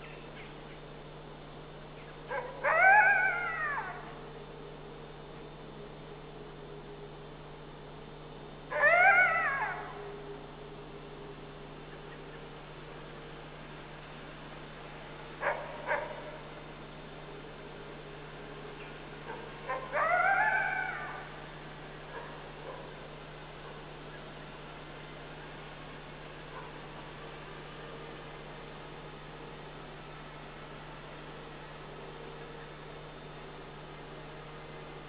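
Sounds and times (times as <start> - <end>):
wolves whining: 2.3 - 4.1, 8.7 - 10.3, 19.3 - 21.3.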